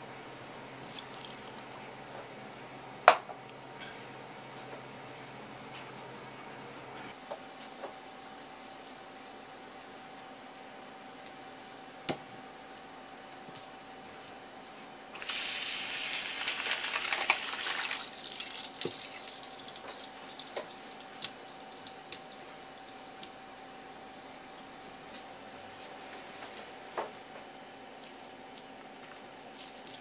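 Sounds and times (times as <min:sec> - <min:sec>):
tap water running into steel bowl: 0:16.6 - 0:20.7.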